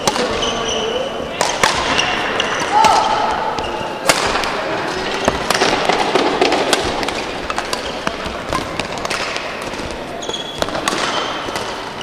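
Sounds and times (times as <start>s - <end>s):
sports hall background noise: 0.0s - 12.0s
shoe squeak on court floor: 0.2s - 1.0s, 3.6s - 4.0s, 10.2s - 12.0s
racket hitting shuttlecock: 1.4s - 12.0s.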